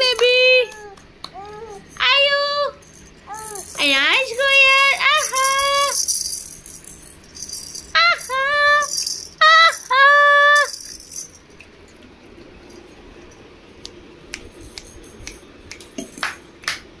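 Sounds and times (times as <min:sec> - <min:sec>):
baby rattle shaking: 0:02.8 - 0:11.5, 0:14.4 - 0:15.4.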